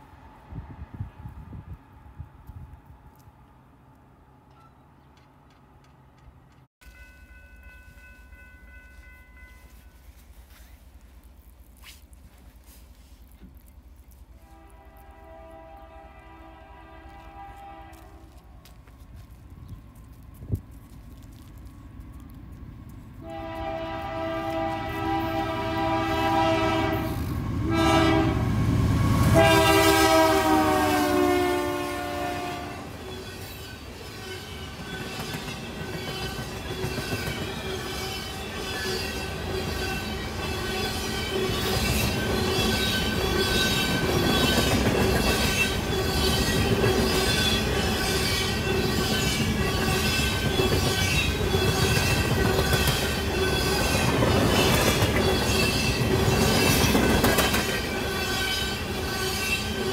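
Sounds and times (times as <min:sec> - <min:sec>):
freight train passing: 0:00.0 - 0:11.4, 0:14.3 - 0:20.8, 0:21.5 - 0:59.9
train air horn blasts: 0:14.4 - 0:18.6, 0:23.2 - 0:28.6, 0:29.2 - 0:33.0.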